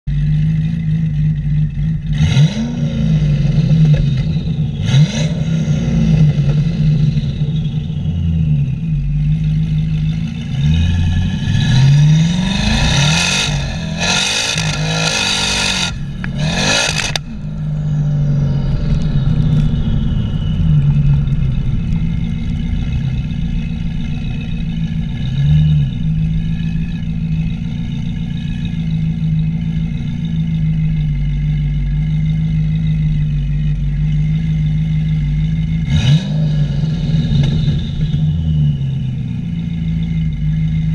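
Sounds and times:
car engine idling and revving: 0:00.0 - 0:40.9
car accelerating hard: 0:10.0 - 0:31.7.

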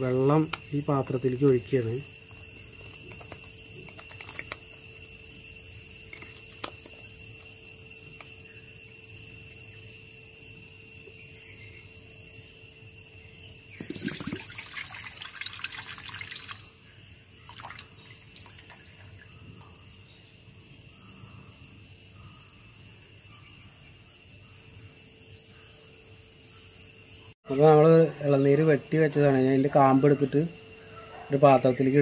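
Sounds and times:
water splashing into steel bowl: 0:13.8 - 0:16.7, 0:17.4 - 0:19.2.

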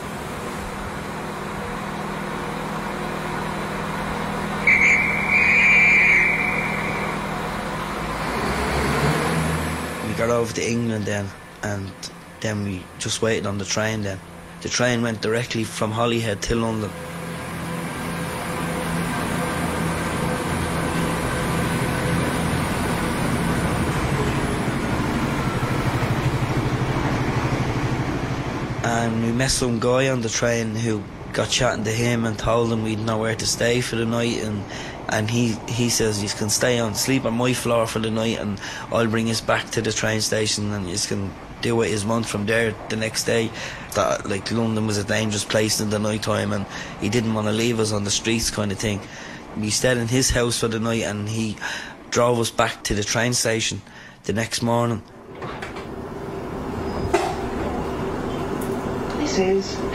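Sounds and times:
train running: 0:00.0 - 0:09.1, 0:10.1 - 0:38.2, 0:55.2 - 0:59.9
vehicle rumble: 0:00.0 - 0:53.8, 0:54.6 - 0:59.9
shrill whistle: 0:04.6 - 0:07.5.

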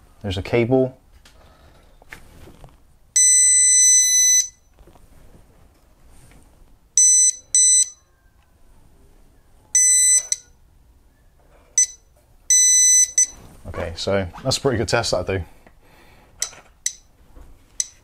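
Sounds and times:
voltage detector beeping: 0:03.2 - 0:04.7, 0:07.0 - 0:08.0, 0:09.8 - 0:10.6, 0:11.8 - 0:13.4.

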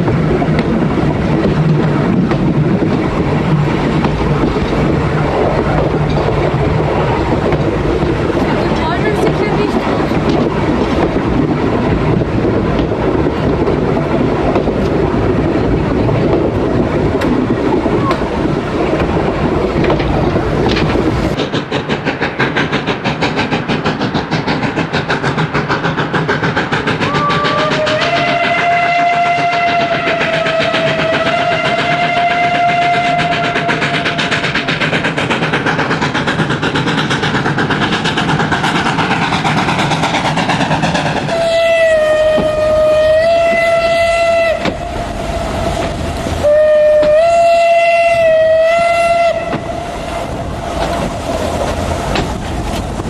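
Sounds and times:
steam locomotive chuffing: 0:00.0 - 0:53.0
train rumbling and rushing: 0:00.0 - 0:53.0
steam whistle blast: 0:27.0 - 0:33.8, 0:41.3 - 0:44.9, 0:46.4 - 0:49.6.

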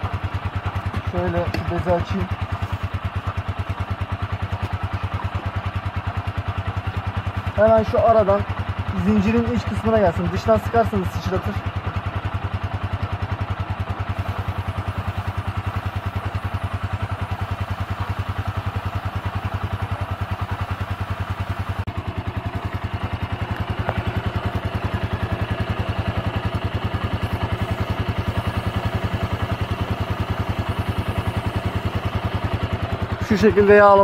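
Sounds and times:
motorcycle engine idling: 0:00.0 - 0:34.0
aerosol spraying: 0:27.2 - 0:32.0.

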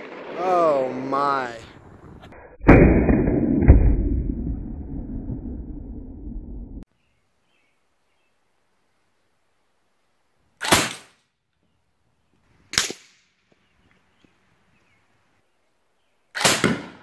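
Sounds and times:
rifle shots with echo: 0:10.6 - 0:11.1, 0:16.4 - 0:17.0.

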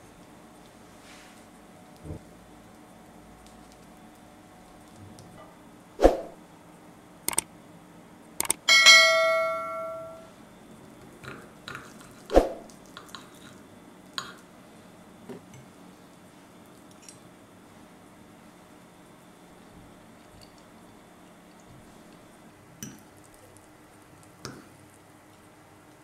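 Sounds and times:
clicks: 0:07.3 - 0:07.5, 0:08.4 - 0:08.6
bell ding: 0:08.7 - 0:10.3.

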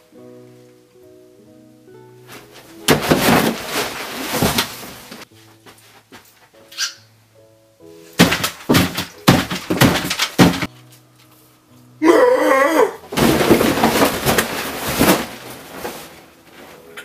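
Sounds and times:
faint background music: 0:00.0 - 0:17.0
table crashing over: 0:02.8 - 0:05.2, 0:08.2 - 0:10.7, 0:13.1 - 0:15.6.

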